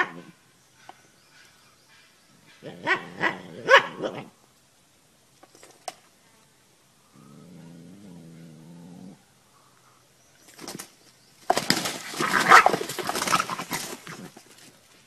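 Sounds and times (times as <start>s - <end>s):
rooster wings flapping: 10.5s - 14.7s
scuffling: 10.5s - 15.0s.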